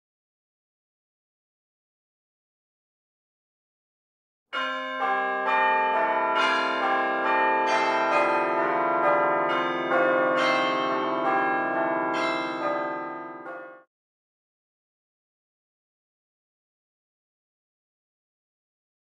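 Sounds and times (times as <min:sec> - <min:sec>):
bell-like chime music: 0:04.6 - 0:13.9.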